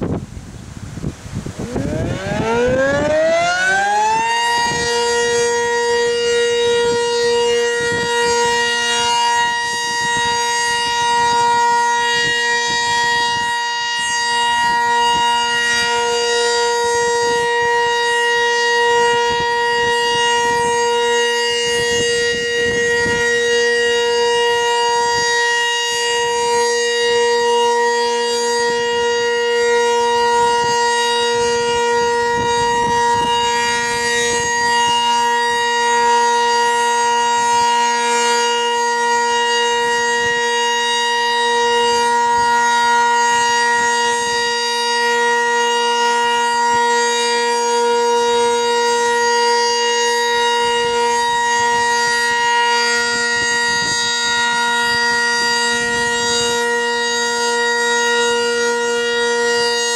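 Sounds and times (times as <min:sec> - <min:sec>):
wind buffeting microphone: 0:00.0 - 0:58.8
warning siren steady tone: 0:00.0 - 0:59.9.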